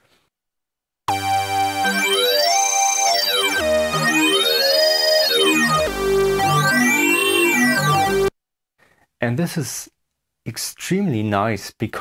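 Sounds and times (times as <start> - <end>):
bright piercing synthesizer lead: 1.1 - 8.3.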